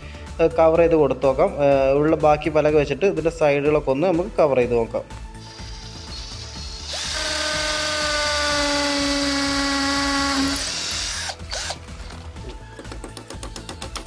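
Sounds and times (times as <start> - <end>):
drill boring into wood: 5.4 - 12.1.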